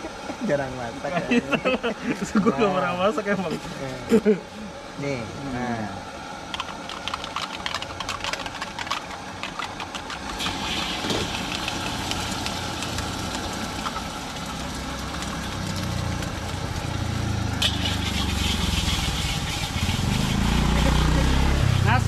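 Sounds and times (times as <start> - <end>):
low burner rumble: 0.0 - 22.0
food sizzling in wok: 10.4 - 22.0.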